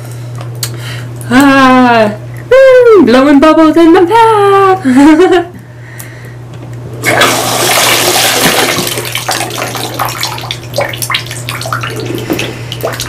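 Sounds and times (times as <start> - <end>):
water splashing in bathtub: 7.0 - 13.0.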